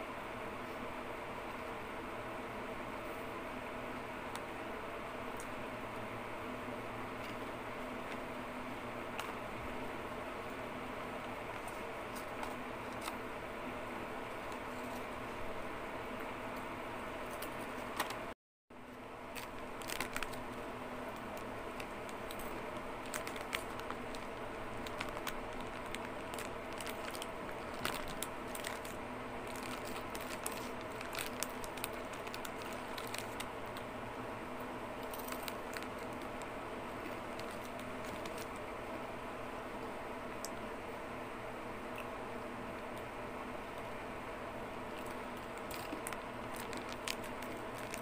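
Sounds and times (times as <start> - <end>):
steady background hum: 0.0 - 48.0
plastic chip bag crinkling: 19.2 - 33.9, 34.9 - 38.7, 44.9 - 48.0.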